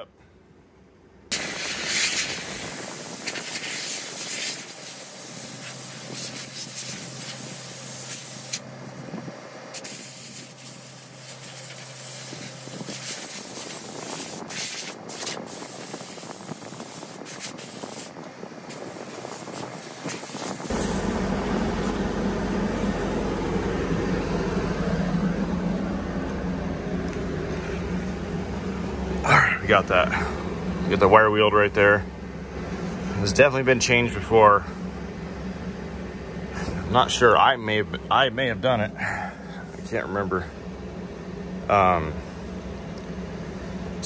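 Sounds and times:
low rumble with hum: 0.0s - 44.0s
air blow gun hissing: 1.3s - 22.0s.

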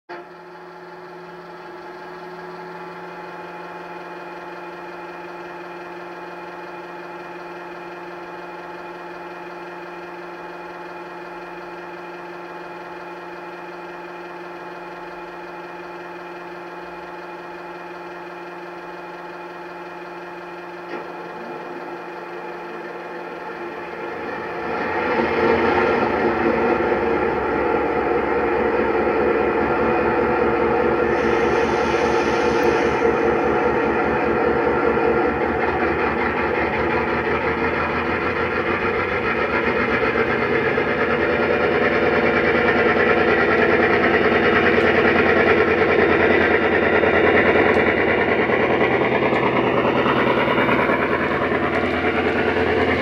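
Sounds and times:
diesel engine idling through speaker: 0.1s - 53.0s
click: 47.7s - 48.0s, 49.3s - 49.5s.

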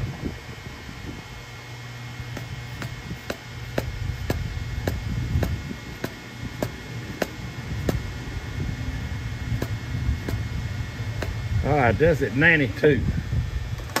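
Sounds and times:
shop fan humming: 0.0s - 14.0s.

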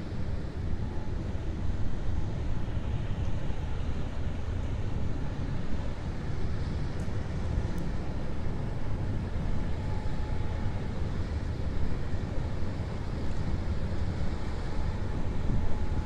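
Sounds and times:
faint steady tone: 9.2s - 16.0s.

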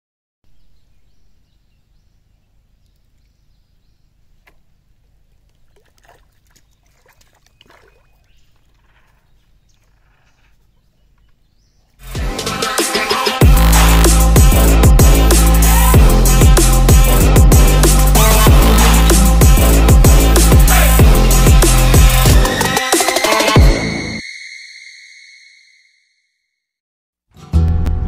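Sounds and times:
fish splashing in water: 5.4s - 10.6s
electronic music with heavy beat: 12.0s - 24.2s.

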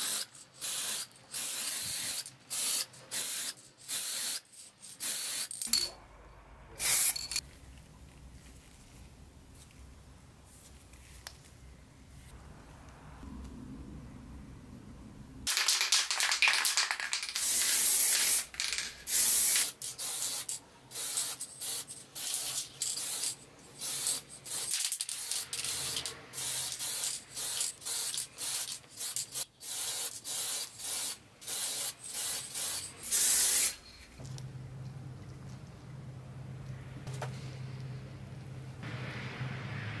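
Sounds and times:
spray paint hissing: 0.0s - 5.6s, 6.8s - 7.4s, 15.5s - 33.8s.

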